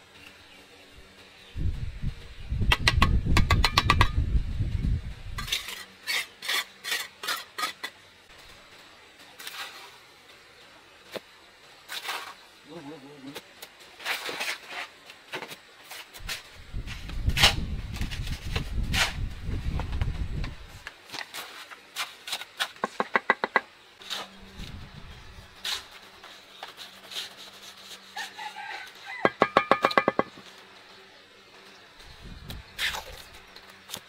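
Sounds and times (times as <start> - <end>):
low rumbling: 4.1 - 5.4
scattered knocks: 29.2 - 30.4.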